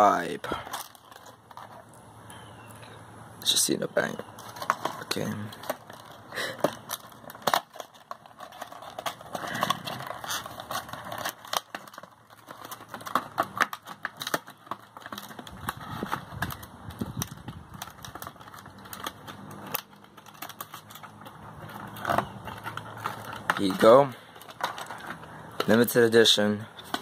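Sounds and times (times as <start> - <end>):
packaging clicks and crackles: 0.0 - 3.0, 4.0 - 27.0.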